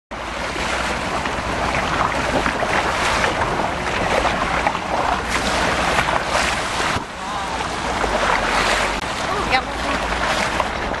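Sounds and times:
water splashing against boat: 0.1s - 11.0s
wind buffeting microphone: 0.1s - 11.0s.

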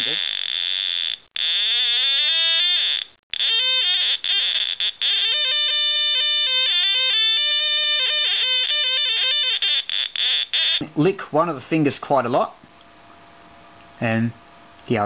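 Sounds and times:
buzzy electronic tone: 0.0s - 10.8s.

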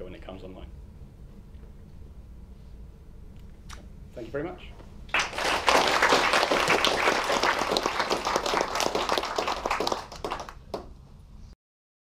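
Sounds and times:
audience applauding: 5.1s - 10.9s.

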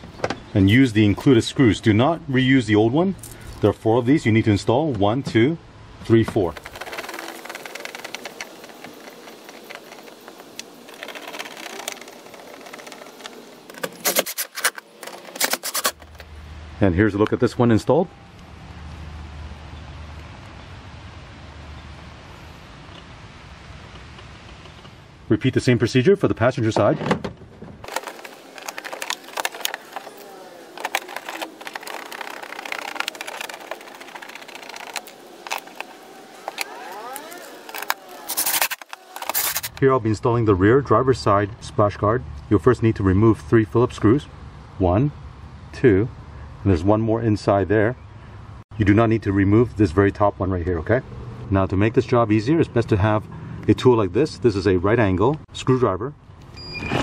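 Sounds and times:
fast mechanical ticking: 6.5s - 14.8s, 27.8s - 39.8s
screws driven into plastic: 6.6s - 16.2s, 27.9s - 39.8s.

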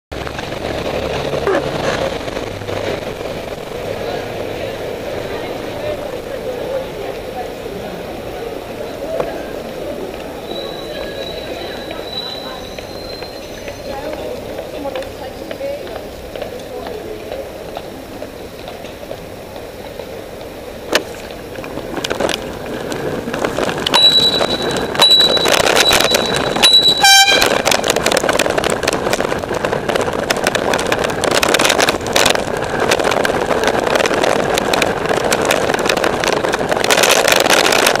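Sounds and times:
wind and road noise: 0.1s - 38.0s
bicycle bell ringing: 23.9s - 27.4s
bicycle air horn: 24.0s - 27.8s.

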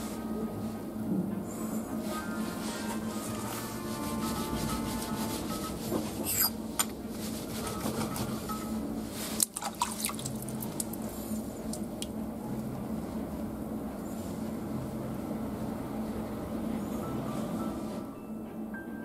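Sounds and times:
water dripping: 9.4s - 12.2s.

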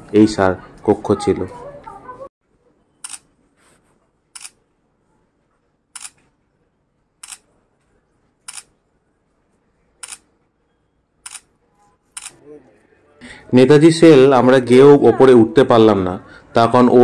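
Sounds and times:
camera shutter clicks: 6.0s - 6.2s.

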